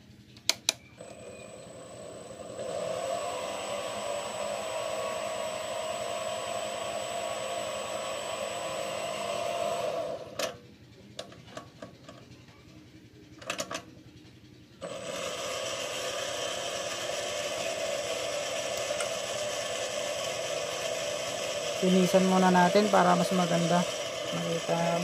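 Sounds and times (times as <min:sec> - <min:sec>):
metal lathe motor whining: 0:01.0 - 0:10.6, 0:14.8 - 0:25.0.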